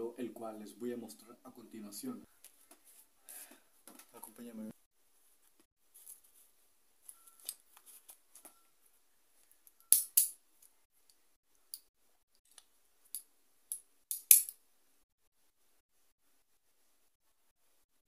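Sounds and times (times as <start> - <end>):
soft rustles: 5.2 - 8.6.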